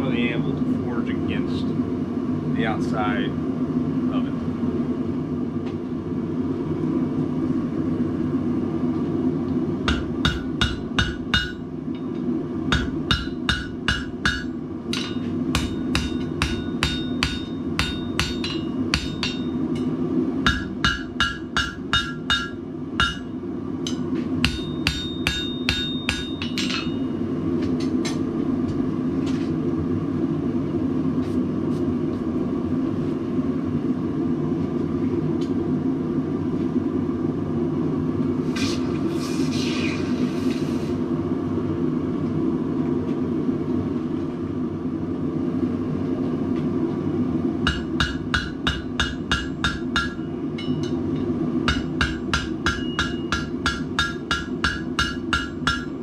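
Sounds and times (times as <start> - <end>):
hammer striking steel on anvil: 9.8 - 27.1, 47.6 - 56.0.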